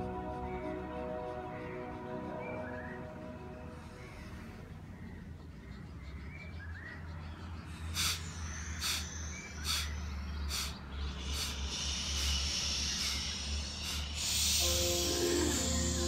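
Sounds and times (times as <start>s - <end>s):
music: 0.0s - 4.4s, 14.6s - 16.0s
forceful breaths through nose: 3.6s - 16.0s.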